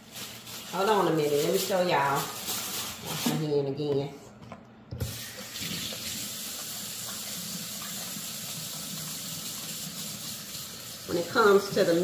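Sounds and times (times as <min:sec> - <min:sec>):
water running from faucet: 0:05.0 - 0:12.0.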